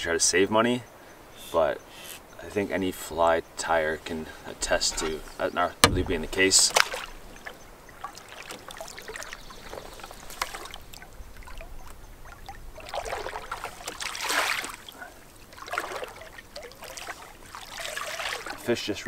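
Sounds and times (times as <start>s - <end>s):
water trickling and dripping: 3.3s - 19.0s
light knock: 5.8s - 6.4s.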